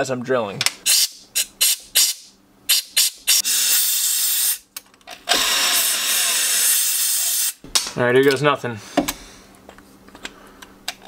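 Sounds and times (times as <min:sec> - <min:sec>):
compressed air blow gun blasting: 0:00.8 - 0:04.6, 0:05.3 - 0:07.6.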